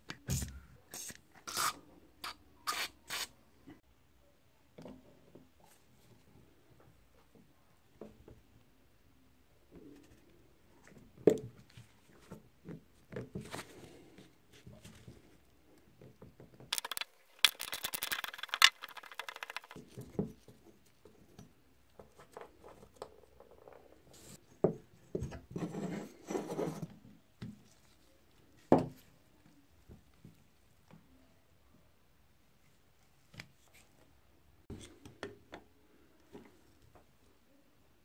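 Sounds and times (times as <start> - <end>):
rapid clicking and scraping: 16.7 - 20.0.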